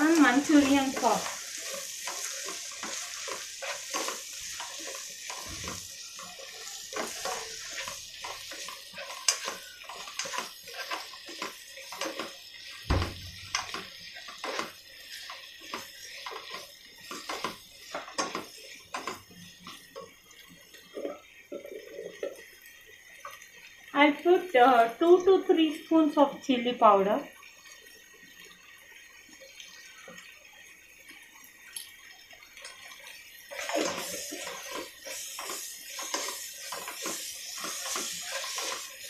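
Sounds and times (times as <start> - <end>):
spatula knocking and scraping pan: 0.0 - 19.8, 33.6 - 39.0
onions sizzling in a pan: 0.0 - 39.0.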